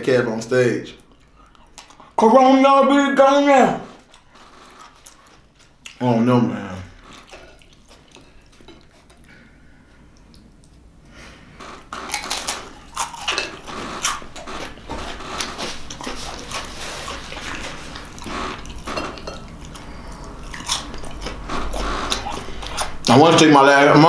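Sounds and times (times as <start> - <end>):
man chewing and mouth smacks: 1.0 - 2.2, 4.0 - 6.0, 7.0 - 11.0, 11.8 - 23.1.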